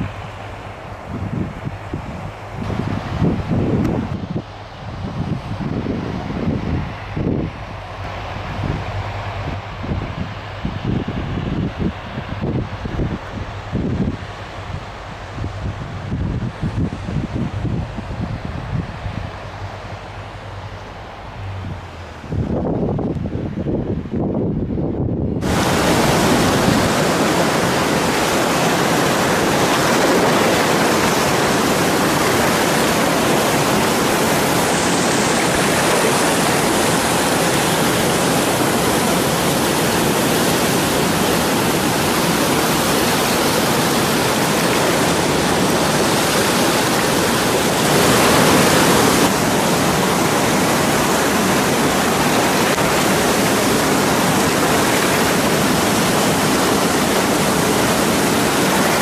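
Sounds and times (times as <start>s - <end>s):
whitewater rushing: 0.0s - 10.6s, 25.4s - 59.0s.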